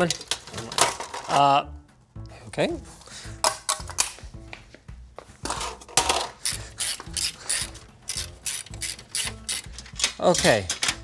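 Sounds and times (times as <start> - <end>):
screws rattling on metal: 6.0 - 11.0.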